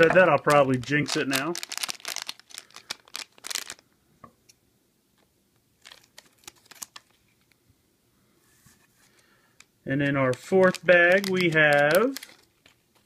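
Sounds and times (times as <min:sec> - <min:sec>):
plastic bag crinkling: 0:00.0 - 0:03.9, 0:05.8 - 0:07.4, 0:10.0 - 0:13.0.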